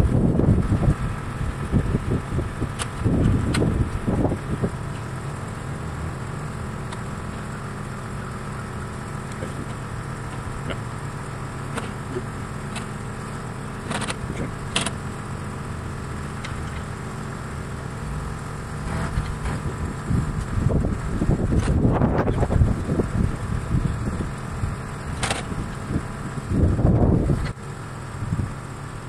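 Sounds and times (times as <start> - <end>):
engine idling hum: 0.0 - 29.0
sharp clicks: 2.8 - 3.7, 12.7 - 13.0, 13.8 - 15.0.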